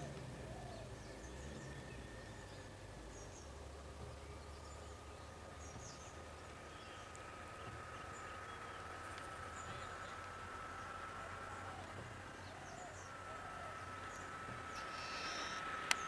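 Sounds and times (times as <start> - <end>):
low rumble: 0.0 - 16.0
short bird chirps: 14.7 - 15.7.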